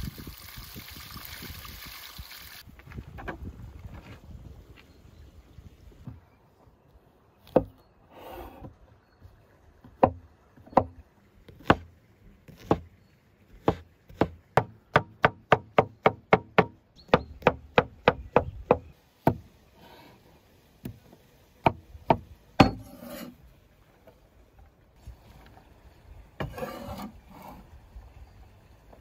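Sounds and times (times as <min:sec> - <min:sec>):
knife chopping on wooden board: 0:11.5 - 0:11.9, 0:13.6 - 0:18.2.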